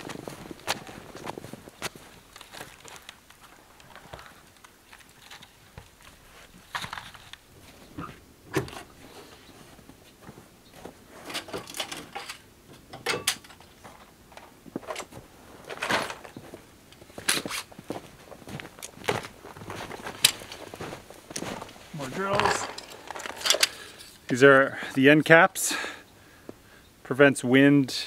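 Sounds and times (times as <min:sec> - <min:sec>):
objects knocking and clattering: 0:11.3 - 0:15.1, 0:22.2 - 0:24.1.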